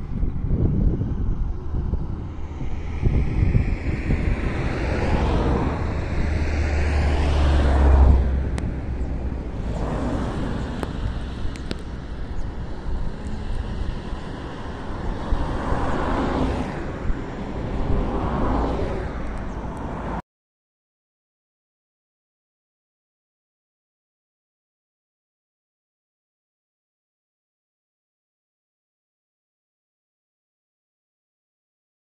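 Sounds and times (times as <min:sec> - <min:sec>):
vehicle road noise: 0:00.0 - 0:20.2
wind rumbling on microphone: 0:00.0 - 0:20.2.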